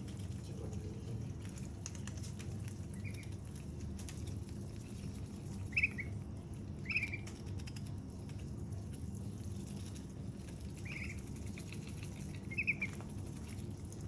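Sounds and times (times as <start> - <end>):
duck bills nibbling clicks: 0.0 - 14.0
ducklings peeping: 2.1 - 8.8, 9.7 - 13.6.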